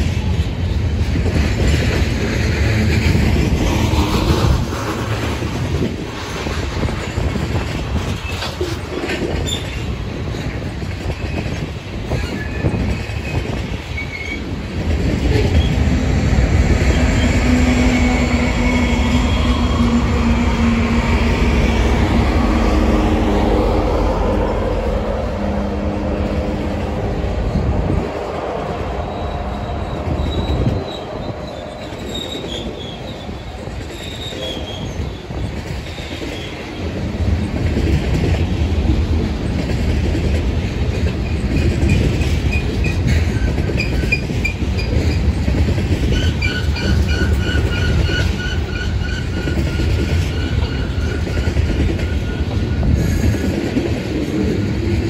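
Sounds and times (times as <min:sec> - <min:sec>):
diesel locomotive engine drone: 0:00.0 - 0:55.0
train cars rumbling and clattering: 0:00.0 - 0:55.0
wheel flanges squealing: 0:29.0 - 0:36.8, 0:46.0 - 0:53.6.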